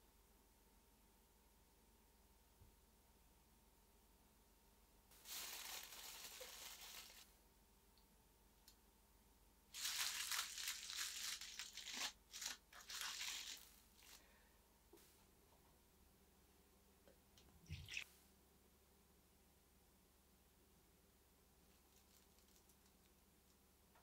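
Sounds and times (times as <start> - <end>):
aluminium foil crinkling: 5.2 - 7.3, 9.7 - 14.3, 21.7 - 23.2.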